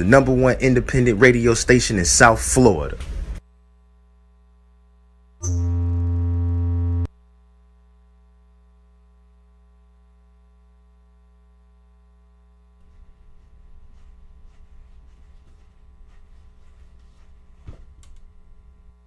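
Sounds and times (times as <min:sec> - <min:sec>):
faint electrical hum: 0:00.0 - 0:19.0
loud buzzy low tone: 0:03.5 - 0:13.2
click: 0:18.0 - 0:18.3.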